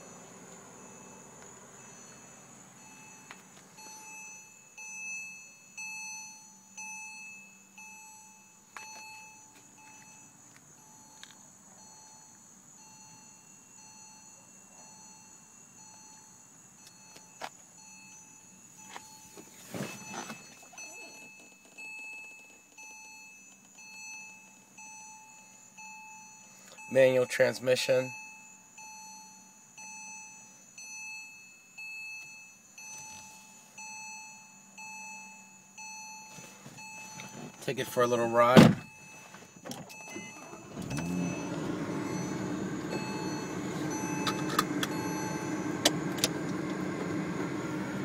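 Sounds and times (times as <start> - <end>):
car warning chime: 0.0 - 48.0
rustle: 18.8 - 21.6.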